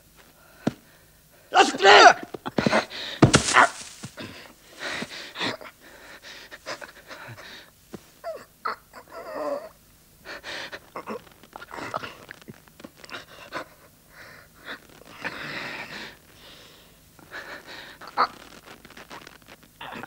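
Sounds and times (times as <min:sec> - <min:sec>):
men panting and gasping: 0:00.6 - 0:07.8
men grunting: 0:01.5 - 0:04.3
scuffling knocks: 0:02.2 - 0:05.2.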